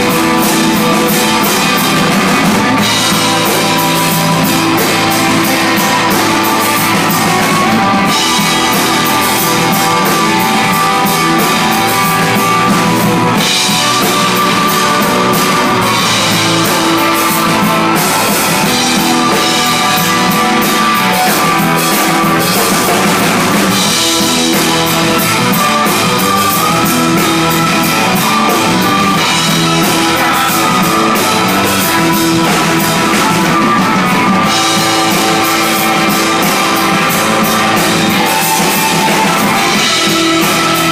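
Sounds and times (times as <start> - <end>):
drum kit with cymbals: 0.0 - 40.9
electric guitar: 0.0 - 40.9.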